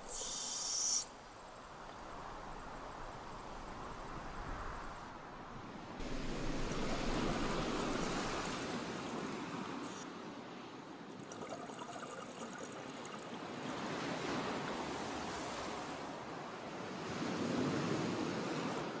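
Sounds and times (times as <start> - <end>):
sea water rushing: 6.0 - 10.0, 10.9 - 18.9.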